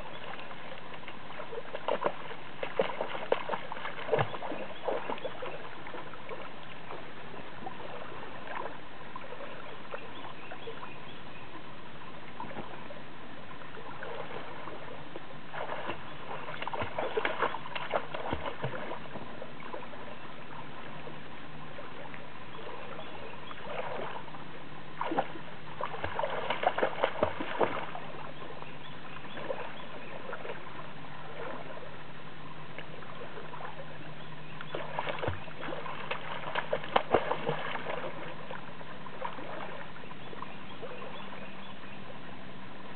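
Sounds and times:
dog splashing in water: 1.5s - 5.6s, 15.5s - 19.1s, 25.0s - 28.2s, 34.7s - 38.4s.

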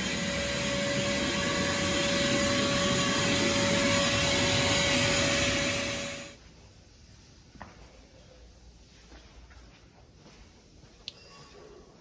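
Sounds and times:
wet dry vacuum whining: 0.0s - 6.4s.

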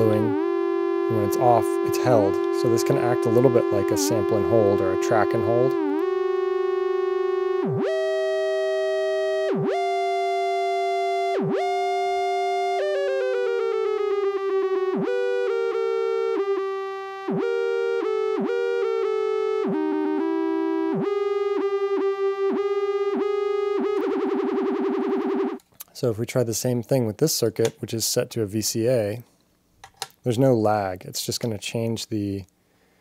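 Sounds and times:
buzzy rough synthesizer drone: 0.0s - 25.6s
synthesizer steady tone: 0.0s - 25.6s
synthesizer tone gliding between pitches: 0.0s - 25.6s.

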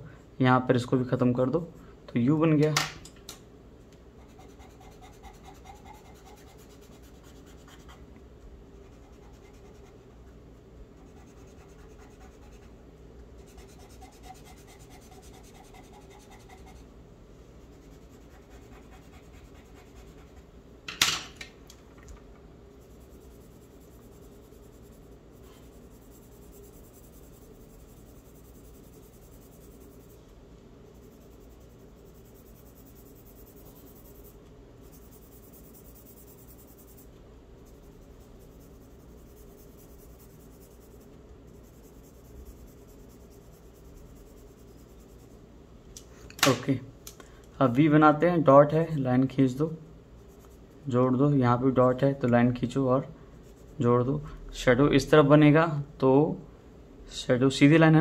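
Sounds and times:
low steady hum: 0.0s - 58.0s
pencil scratching on paper: 4.2s - 8.1s, 8.8s - 10.2s, 11.0s - 12.8s, 13.4s - 16.9s, 17.6s - 20.5s, 22.7s - 30.2s, 30.8s - 45.4s, 50.2s - 50.7s, 53.4s - 53.8s.

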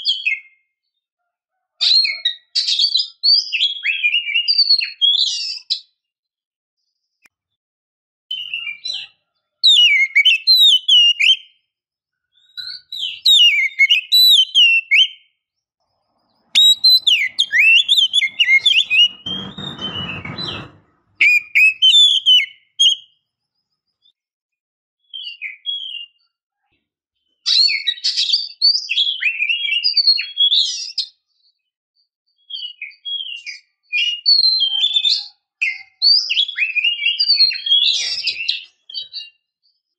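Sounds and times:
bird singing whistled notes: 8.3s - 11.5s, 12.3s - 15.2s, 16.5s - 20.0s, 21.2s - 23.2s
rustling noise: 16.6s - 21.4s.

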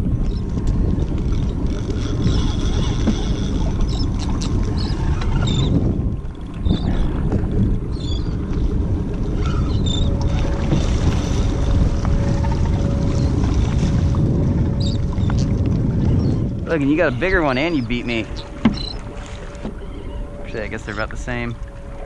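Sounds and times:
boat low rumble: 0.0s - 22.0s
short high squeaks: 1.9s - 5.7s, 17.1s - 21.2s.

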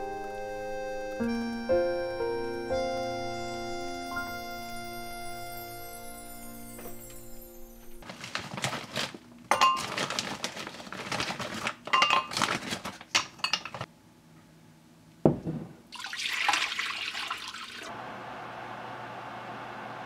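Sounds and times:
plastic packet crinkling: 8.0s - 13.9s
clinking against glass bowl: 9.5s - 9.9s, 12.0s - 12.3s
knock: 15.3s - 15.8s
water pouring into bowl: 15.9s - 17.9s.

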